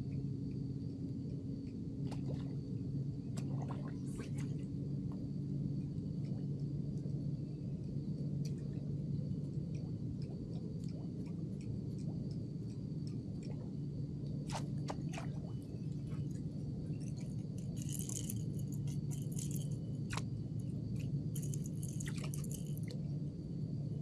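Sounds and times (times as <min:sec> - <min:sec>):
steady low hum: 0:00.0 - 0:24.0
reel rattling bursts: 0:17.2 - 0:19.9, 0:21.0 - 0:22.9
fishing reel clicks: 0:17.6 - 0:20.2.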